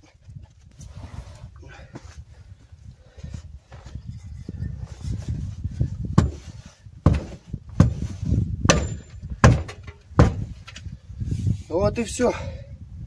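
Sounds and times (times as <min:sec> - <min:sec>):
hammer striking steel wheel rim: 0:08.7 - 0:10.4.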